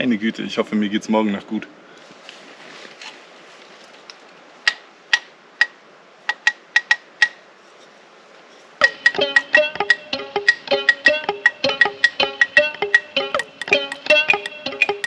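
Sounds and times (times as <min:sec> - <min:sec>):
faint hiss: 0:00.0 - 0:15.0
beat with plucked strings: 0:08.8 - 0:15.0.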